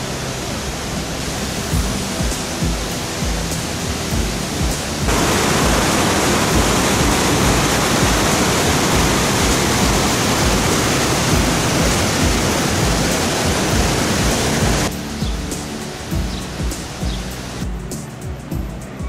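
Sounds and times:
waterfall rushing: 0:00.0 - 0:19.0.

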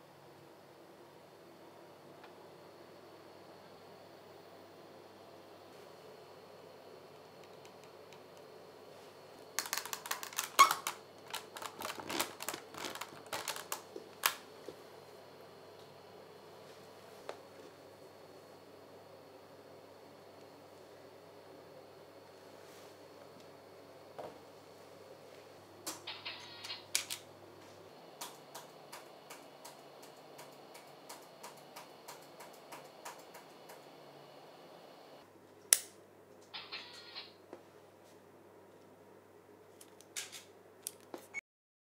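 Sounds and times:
plastic toys clicking and tapping: 0:09.6 - 0:14.4
light evenly spaced clicks: 0:28.2 - 0:33.9.

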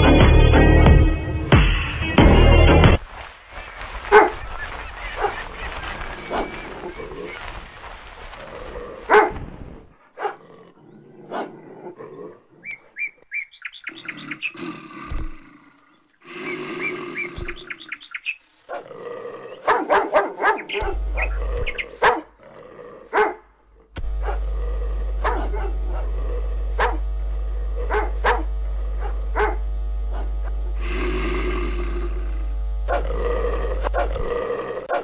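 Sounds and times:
dog barking: 0:04.1 - 0:04.4, 0:05.1 - 0:05.5, 0:06.2 - 0:06.6, 0:09.1 - 0:09.4, 0:10.2 - 0:10.4, 0:11.3 - 0:11.6, 0:18.7 - 0:19.0, 0:19.6 - 0:22.3, 0:23.1 - 0:23.5, 0:24.1 - 0:30.4, 0:32.9 - 0:33.2, 0:33.8 - 0:34.2
dogs snarling and growling: 0:05.2 - 0:07.7, 0:08.3 - 0:12.7, 0:13.9 - 0:18.0, 0:18.7 - 0:35.0
dog yelping: 0:19.6 - 0:22.3.

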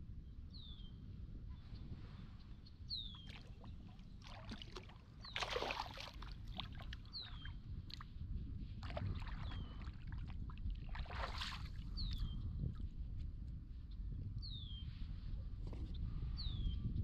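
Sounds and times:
paddle splashing in water: 0:03.2 - 0:08.0, 0:08.8 - 0:11.8.

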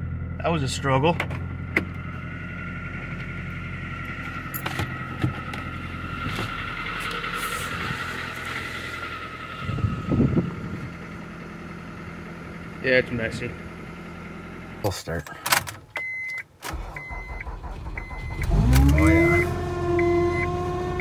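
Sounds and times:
car engine idling: 0:00.0 - 0:15.2.

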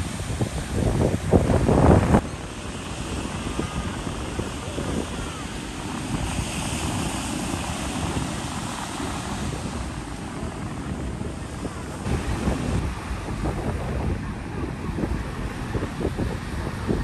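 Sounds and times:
surf washing onto beach: 0:00.0 - 0:17.0
wind buffeting microphone: 0:00.0 - 0:17.0.

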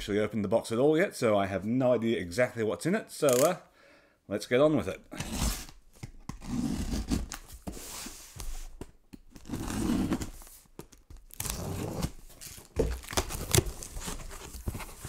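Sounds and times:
tape tearing: 0:03.2 - 0:03.6, 0:05.2 - 0:07.8, 0:09.3 - 0:15.0
box cutter slitting tape: 0:03.3 - 0:03.6, 0:05.2 - 0:07.5, 0:09.3 - 0:10.4, 0:11.3 - 0:15.0
cardboard rustling: 0:05.2 - 0:15.0.

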